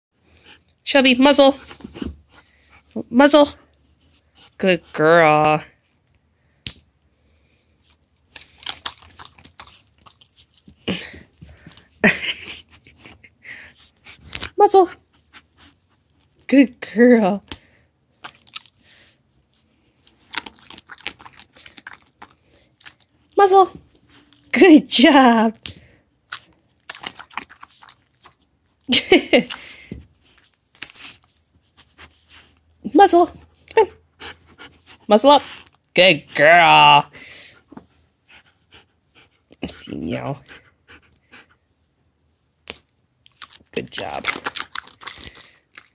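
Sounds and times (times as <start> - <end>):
dog chewing and mouthing: 7.8 - 13.3, 19.5 - 23.4, 26.3 - 28.8, 42.6 - 45.9.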